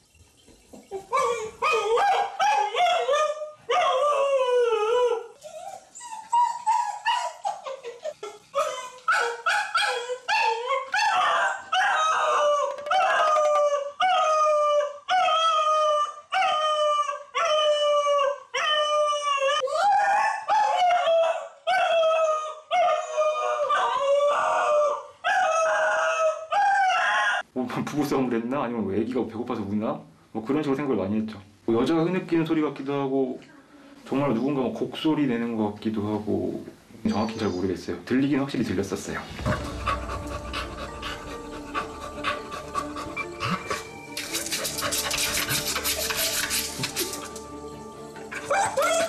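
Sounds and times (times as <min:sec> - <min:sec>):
dog howling and wailing: 0:01.1 - 0:07.6, 0:08.6 - 0:27.5, 0:39.4 - 0:49.0.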